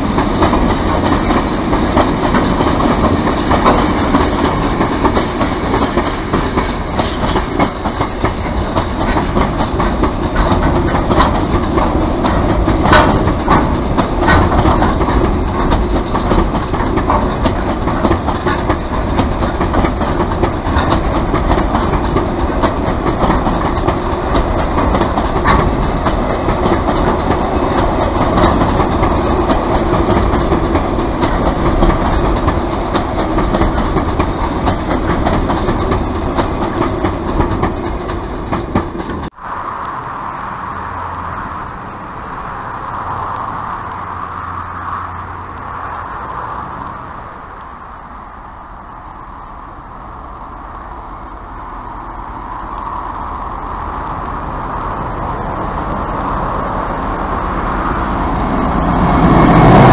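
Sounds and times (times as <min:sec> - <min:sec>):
freight train wheels clattering: 0:00.0 - 0:39.4, 0:54.1 - 0:59.9
steady background noise: 0:00.0 - 0:59.9.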